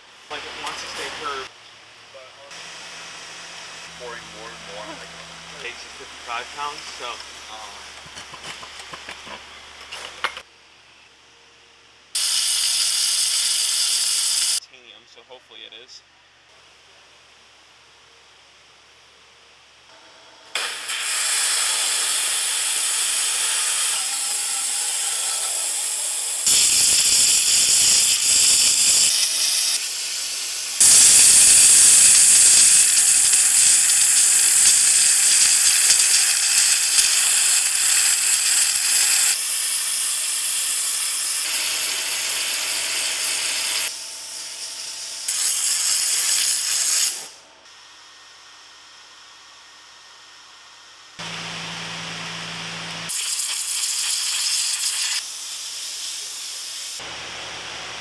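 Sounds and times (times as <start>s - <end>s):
high-pressure water jet hissing: 12.2s - 14.6s, 20.6s - 47.4s, 53.1s - 57.2s.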